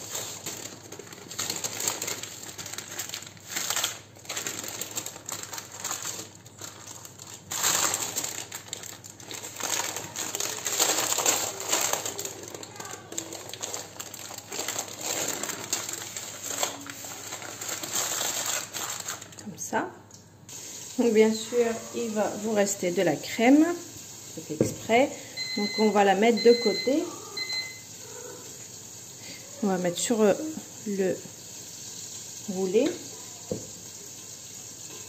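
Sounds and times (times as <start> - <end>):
baking paper crinkling: 0.0 - 19.6.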